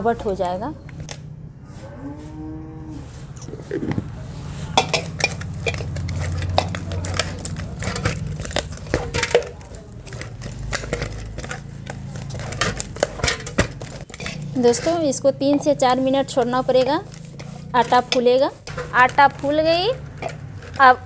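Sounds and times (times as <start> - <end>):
spoon scraping steel bowl: 4.8 - 21.0.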